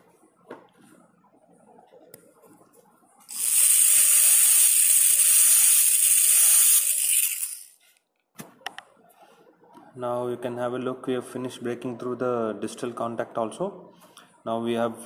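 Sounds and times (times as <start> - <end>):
dental drill hissing: 3.3 - 7.7.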